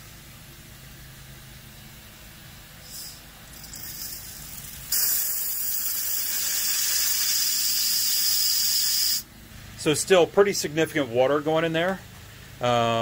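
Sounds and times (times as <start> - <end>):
compressed air hissing from drain valve: 2.8 - 9.3.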